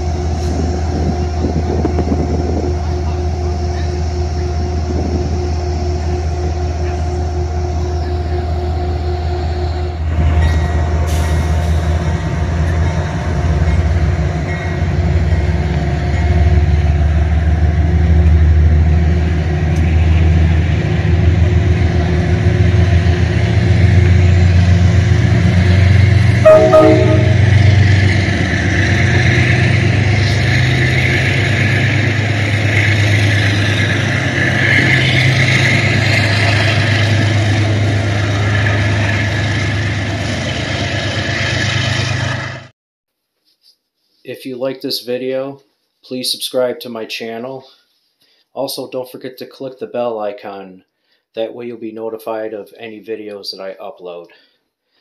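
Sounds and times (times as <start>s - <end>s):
diesel train engine drone: 0.0s - 42.7s
rolling rush of train cars: 0.0s - 42.7s
train horn blast: 26.4s - 28.2s.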